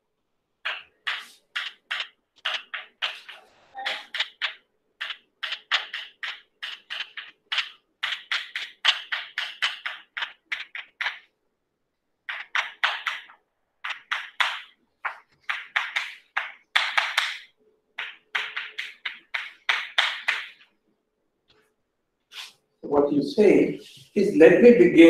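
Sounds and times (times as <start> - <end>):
chalk scraping on chalkboard: 0.7 - 11.2, 22.3 - 22.6.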